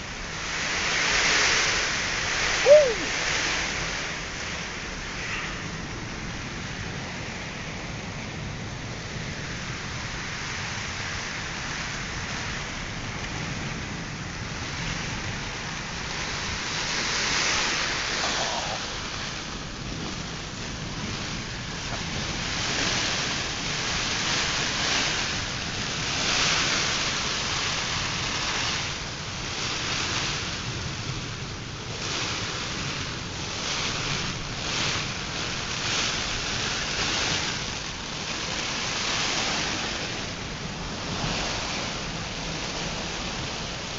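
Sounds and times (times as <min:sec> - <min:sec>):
gusting wind: 0:00.0 - 0:43.9
rain: 0:00.0 - 0:43.9.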